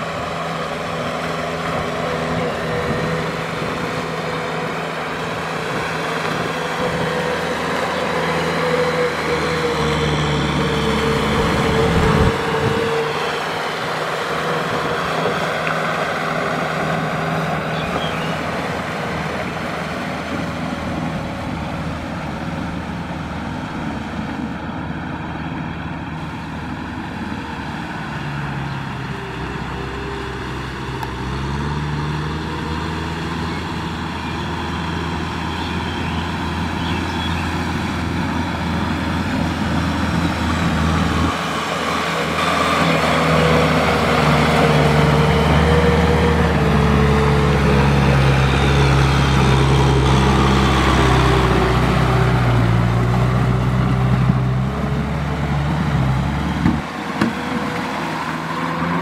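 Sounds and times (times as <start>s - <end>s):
tiller churning and splashing mud: 0.0s - 59.0s
tractor diesel engine under load: 0.0s - 59.0s.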